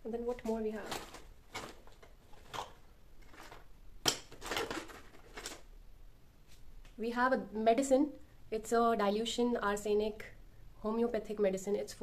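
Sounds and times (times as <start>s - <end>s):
rummaging through drawer objects: 0.3s - 3.7s, 4.3s - 5.6s.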